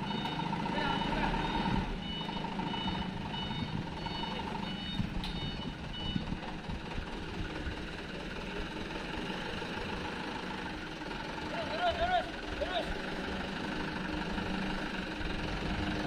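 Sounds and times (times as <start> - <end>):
truck reversing alarm beeping: 0.0 - 6.7
truck engine running: 0.0 - 16.0.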